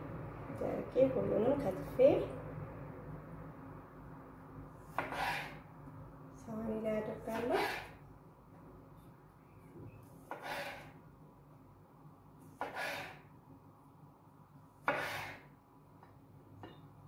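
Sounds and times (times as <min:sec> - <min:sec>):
knife cutting on cutting board: 0:04.9 - 0:05.6, 0:07.3 - 0:08.0, 0:10.2 - 0:11.0, 0:12.5 - 0:13.3, 0:14.8 - 0:15.5.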